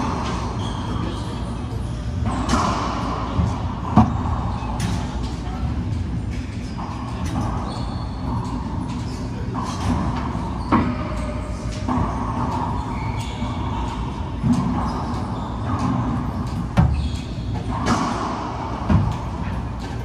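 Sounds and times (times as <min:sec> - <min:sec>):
steady background hum: 0:00.0 - 0:20.0
racquetball hits echoing: 0:02.1 - 0:05.6, 0:09.6 - 0:19.9.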